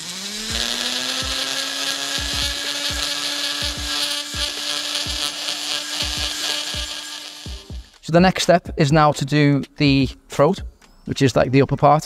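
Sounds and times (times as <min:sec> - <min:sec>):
burr cutting metal hiss: 0:00.0 - 0:08.0
die grinder whining: 0:00.0 - 0:08.0.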